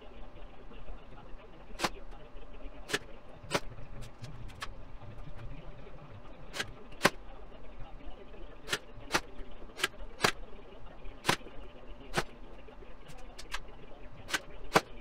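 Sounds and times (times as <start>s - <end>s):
nail gun firing: 1.8s - 2.0s, 2.9s - 3.7s, 6.5s - 7.2s, 8.7s - 10.4s, 11.2s - 11.5s, 12.1s - 12.4s, 14.3s - 15.0s.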